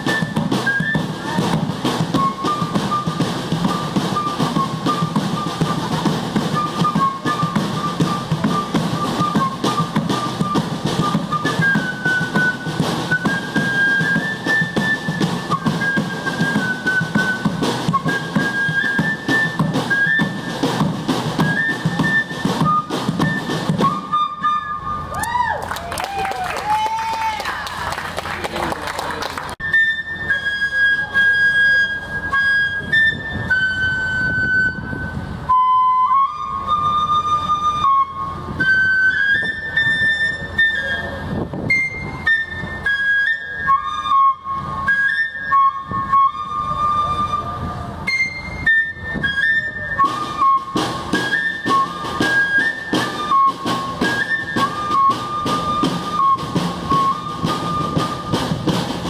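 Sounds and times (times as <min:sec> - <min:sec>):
snare and bass drum: 0:00.0 - 0:24.5, 0:50.0 - 0:59.0
cane fife melody: 0:00.0 - 0:25.2, 0:29.4 - 0:59.0.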